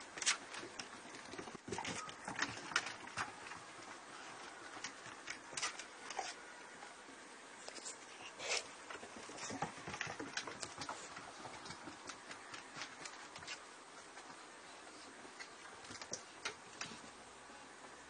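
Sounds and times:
dog claws pattering on wooden deck: 0.1s - 6.4s, 8.8s - 14.4s, 15.3s - 17.1s.

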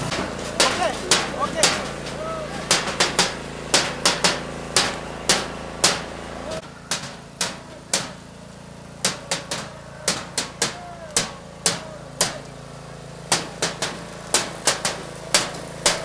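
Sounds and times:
sharp knocks: 0.0s - 6.1s, 6.9s - 8.2s.

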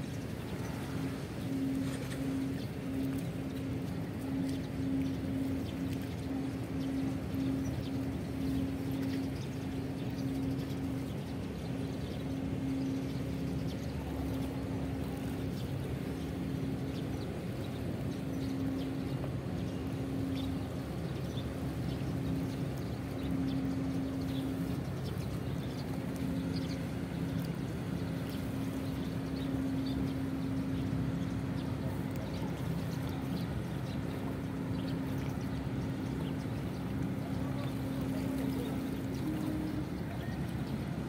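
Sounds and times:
ship engines droning: 0.0s - 41.0s
water splashing near shore: 0.0s - 41.0s.

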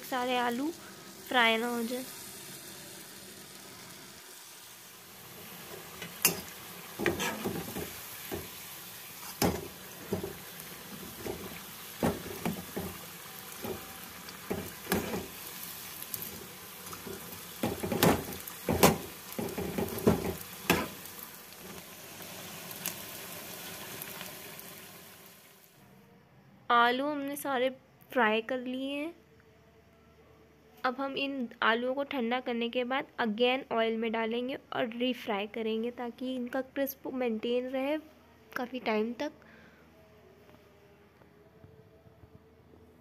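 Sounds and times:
deep-frying sizzle: 0.0s - 25.8s
metal spoon knocking pan: 6.0s - 8.5s, 9.4s - 10.4s, 11.2s - 13.0s, 14.4s - 15.3s, 17.6s - 21.0s.

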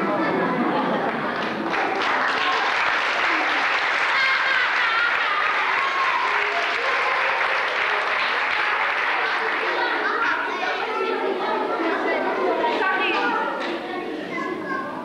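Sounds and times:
audience applauding: 1.0s - 10.7s.

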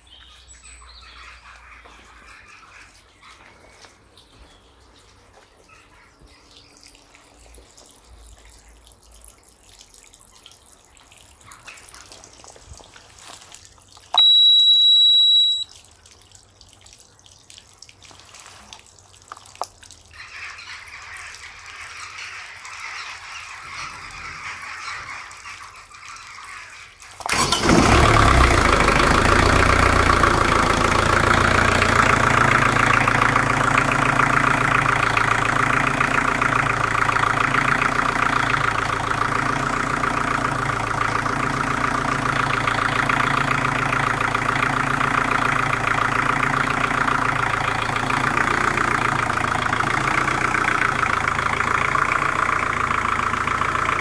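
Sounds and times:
diesel engine starting and running: 14.1s - 15.7s, 27.2s - 54.0s
high warning buzzer beep: 14.2s - 15.7s.

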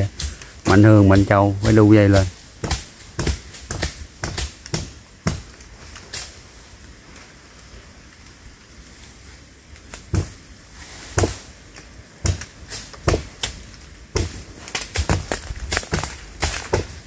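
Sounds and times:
sharp irregular knocks and cracks: 0.0s - 6.4s, 9.8s - 10.4s, 11.1s - 17.0s.

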